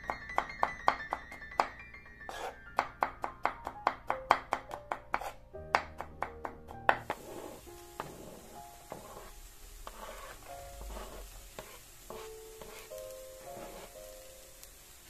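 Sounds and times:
background music: 0.0s - 11.6s, 12.2s - 14.7s
knife chopping on wooden board: 2.3s - 12.9s.

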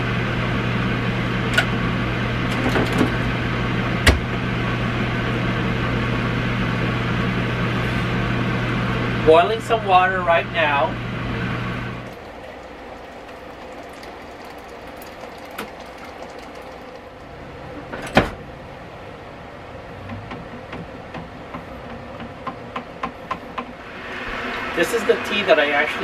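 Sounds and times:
water pouring into plastic pitcher: 12.0s - 17.3s.

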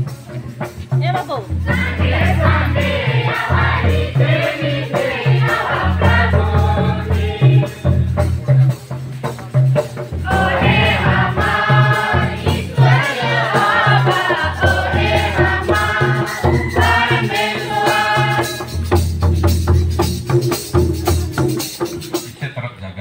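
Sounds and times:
hand drum beating: 0.0s - 22.4s
quick ticking percussion: 0.0s - 22.6s
group singing a hymn: 1.6s - 8.0s, 10.2s - 19.0s.

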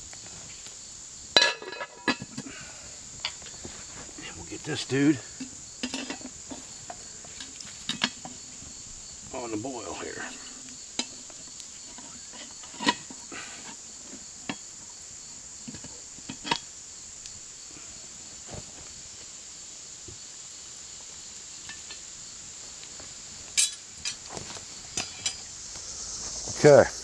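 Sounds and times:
high insect drone: 0.0s - 27.0s
metal clinks on cast iron pot: 1.4s - 2.5s, 5.4s - 8.5s, 21.6s - 22.1s, 23.6s - 24.2s, 24.9s - 25.5s.

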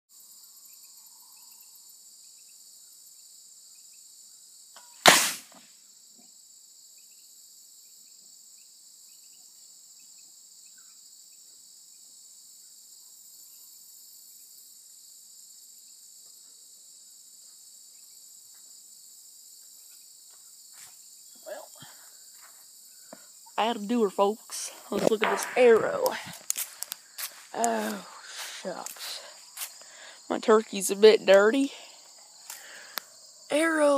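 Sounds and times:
crickets and insects chirping: 0.1s - 33.9s
can bursting with a bang: 5.0s - 5.7s.

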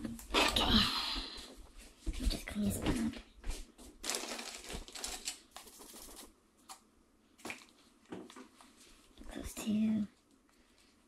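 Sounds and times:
plastic parts rustling and clattering: 4.0s - 6.7s.

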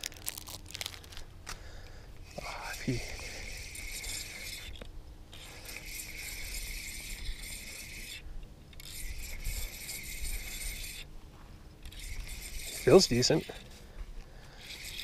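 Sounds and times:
fishing reel ratchet clicking: 2.8s - 11.1s, 11.8s - 13.6s, 14.6s - 15.0s.

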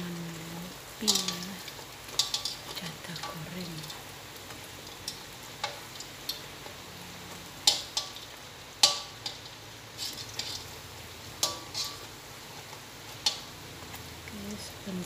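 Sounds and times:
rice cakes sizzling in hot oil: 0.0s - 15.0s
metal spatula clinking on wok: 2.1s - 2.6s, 8.8s - 10.7s, 11.4s - 12.1s.

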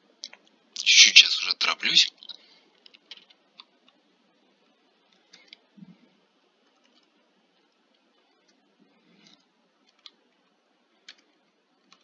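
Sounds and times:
computer mouse clicks: 6.6s - 8.6s, 9.2s - 10.2s, 11.0s - 12.0s.

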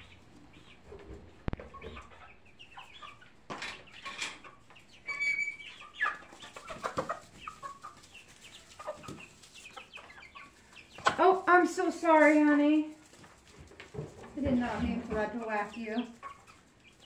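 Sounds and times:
young chickens clucking: 0.0s - 17.0s.

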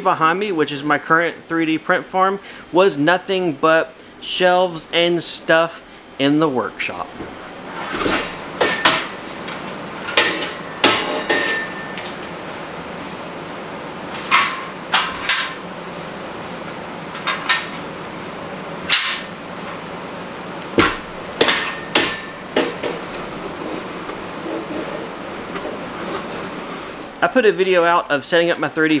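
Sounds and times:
steel shelving clanking: 7.1s - 12.2s, 20.8s - 27.0s.

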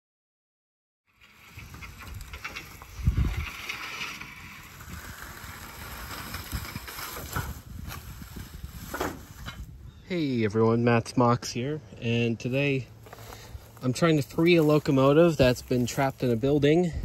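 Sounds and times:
low rumbling: 1.1s - 17.0s
footsteps through dry leaves: 4.5s - 9.4s, 12.9s - 16.6s.

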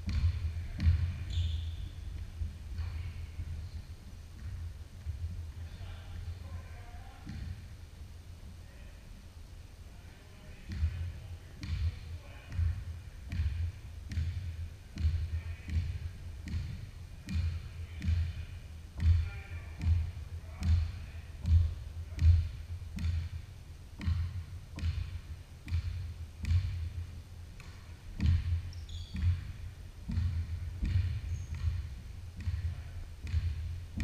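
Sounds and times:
basketball dribbling on hardwood: 0.0s - 3.1s, 10.7s - 23.4s, 24.0s - 34.0s
sneakers squeaking: 0.0s - 7.6s, 10.7s - 23.4s, 24.0s - 26.9s, 27.5s - 34.0s.

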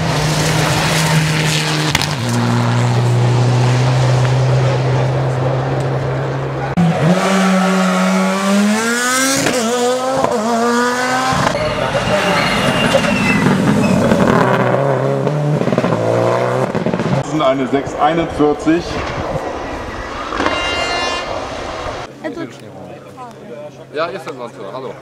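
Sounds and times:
rally car engine at high revs: 0.0s - 17.2s
car accelerating hard: 0.0s - 17.3s.

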